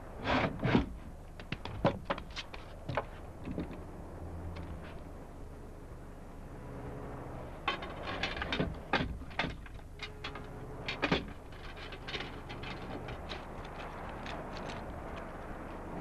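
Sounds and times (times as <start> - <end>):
low steady hum: 0.0 - 16.0
knocks and clatter of rummaging: 7.6 - 15.3.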